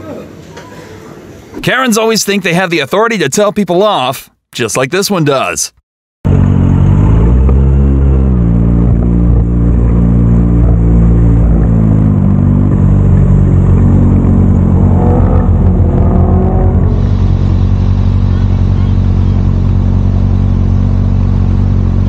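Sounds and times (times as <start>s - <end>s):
motorcycle engine running: 6.3s - 22.0s.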